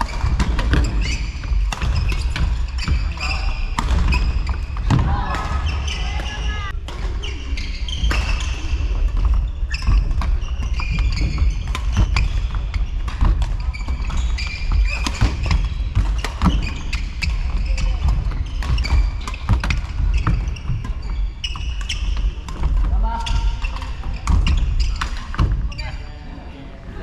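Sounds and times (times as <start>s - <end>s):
racket hitting shuttlecock: 0.0s - 7.2s
shoes squeaking: 0.0s - 26.2s.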